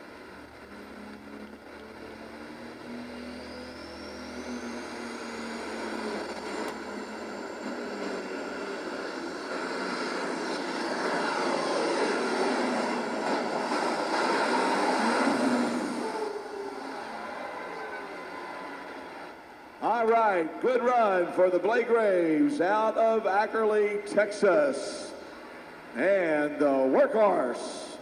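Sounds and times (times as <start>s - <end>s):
tractor engine under full load: 0.0s - 20.3s
high turbo whistle: 1.0s - 19.8s.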